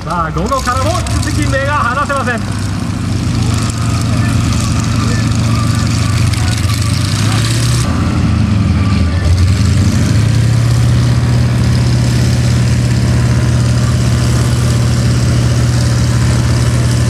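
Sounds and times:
radial engine idling: 0:00.0 - 0:17.0.

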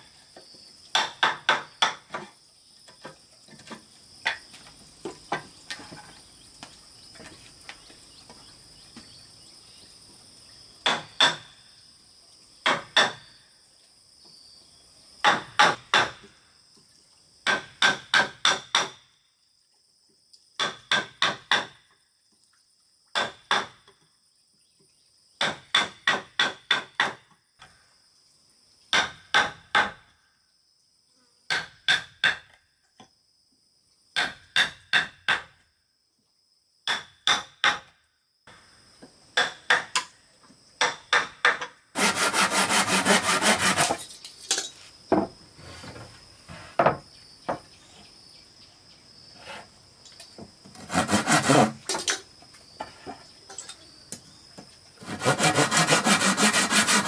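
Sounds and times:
insects buzzing: 0:38.5 - 0:57.0.

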